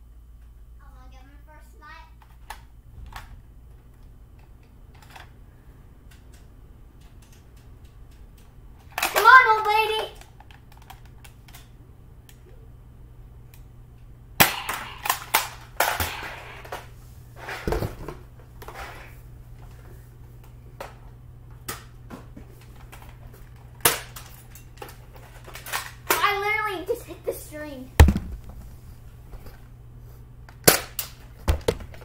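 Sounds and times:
low room hum: 0:00.0 - 0:32.0
foam-dart blasters firing: 0:14.4 - 0:16.8
darts smacking walls: 0:14.4 - 0:16.9, 0:28.0 - 0:28.7.

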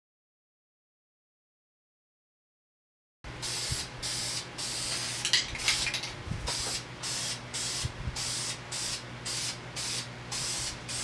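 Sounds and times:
spray can hissing: 0:03.4 - 0:05.9, 0:06.5 - 0:11.0.

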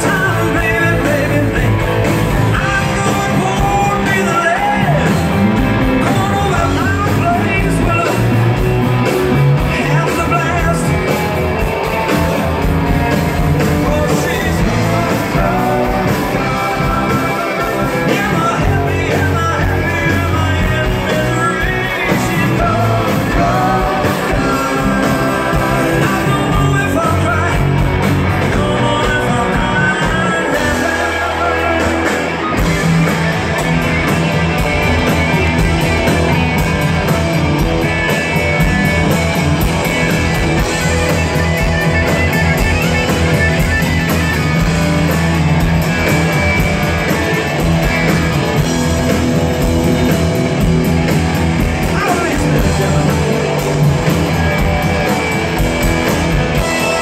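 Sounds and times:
person singing: 0:00.0 - 0:08.6, 0:13.6 - 0:32.7, 0:51.8 - 0:53.9
live rock band: 0:00.0 - 0:57.0.

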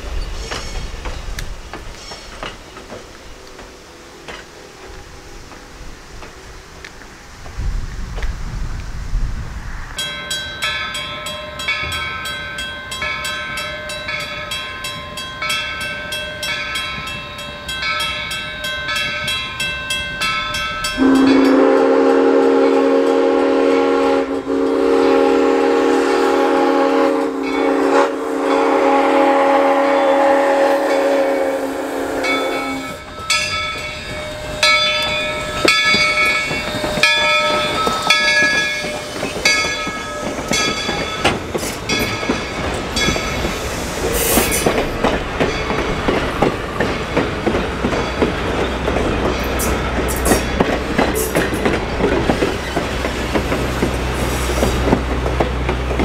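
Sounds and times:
steam locomotive bell ringing: 0:10.0 - 0:56.0
long train whistle blast: 0:21.0 - 0:33.4.

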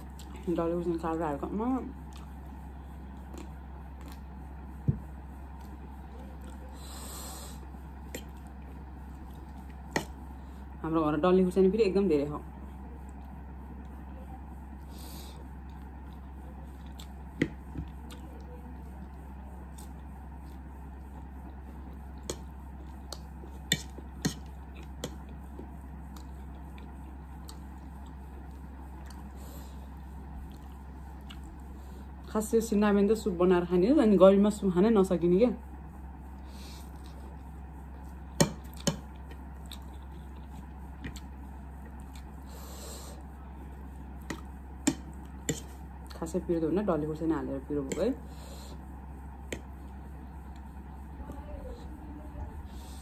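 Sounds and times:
quiet chewing: 0:00.0 - 0:00.4, 0:02.0 - 0:04.8, 0:05.4 - 0:10.3, 0:14.8 - 0:32.2, 0:36.3 - 0:46.2, 0:47.9 - 0:52.0
steady low hum: 0:00.0 - 0:53.0
breathing: 0:36.4 - 0:37.0, 0:42.5 - 0:43.2, 0:48.2 - 0:48.8, 0:52.7 - 0:53.0.

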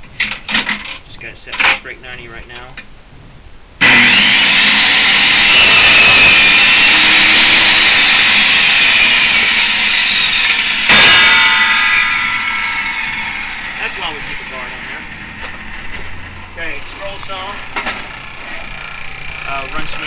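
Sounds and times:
bench saw whining: 0:03.8 - 0:20.0.

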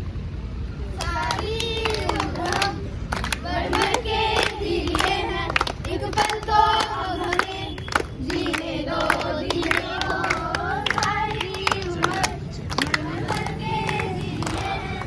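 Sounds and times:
hands clapping in rhythm: 0:01.0 - 0:15.0.

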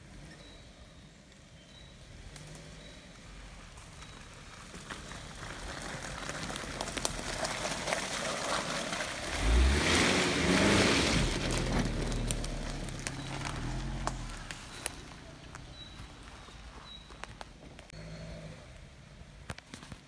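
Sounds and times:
tyres on muddy track: 0:00.0 - 0:20.0
vehicle engine driving past: 0:09.3 - 0:16.5.

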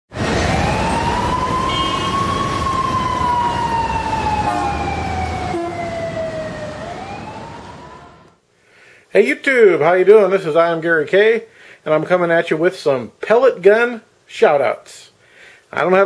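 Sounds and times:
siren wailing: 0:00.2 - 0:08.4.

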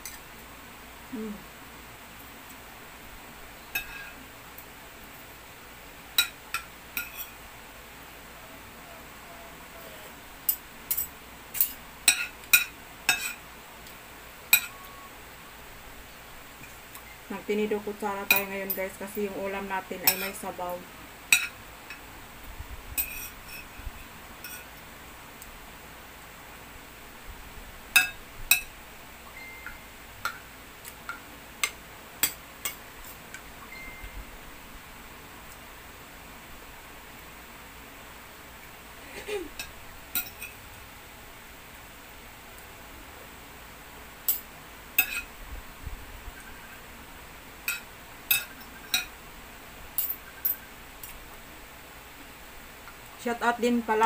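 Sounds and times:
cutlery clinking on ceramic plate: 0:03.8 - 0:04.2, 0:14.5 - 0:14.8, 0:28.0 - 0:28.7, 0:39.6 - 0:40.6, 0:47.7 - 0:49.1.

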